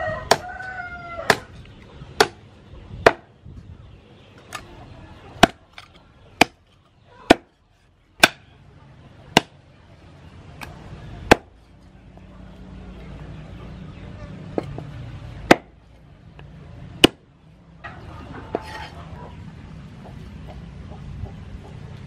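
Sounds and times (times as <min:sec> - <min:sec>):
cleaver chopping on wooden board: 0:00.3 - 0:00.5, 0:02.2 - 0:02.4, 0:03.0 - 0:03.3, 0:07.3 - 0:07.5, 0:08.2 - 0:08.4, 0:11.3 - 0:11.5, 0:15.5 - 0:15.7, 0:17.0 - 0:17.2.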